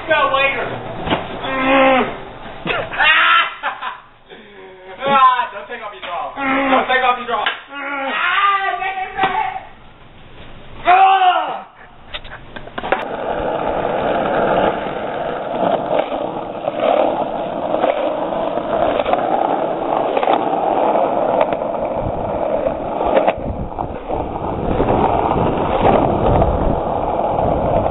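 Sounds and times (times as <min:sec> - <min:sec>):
wheels rolling on asphalt: 0:12.0 - 0:27.9
low rumble: 0:12.8 - 0:27.9
wind on microphone: 0:13.0 - 0:27.9.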